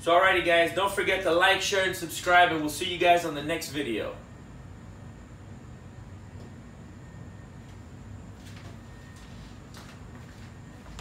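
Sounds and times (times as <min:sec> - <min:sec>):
low room hum: 0:00.0 - 0:11.0
footsteps walking away: 0:07.6 - 0:11.0.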